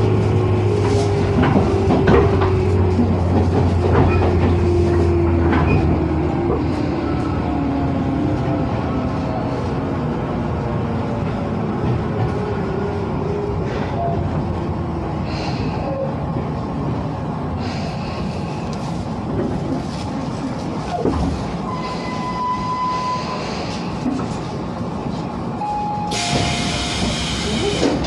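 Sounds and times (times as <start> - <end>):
electric train rumbling: 0.0 - 28.0
train brake squeal: 21.7 - 23.6, 25.7 - 28.0
train doors hissing open: 26.0 - 28.0.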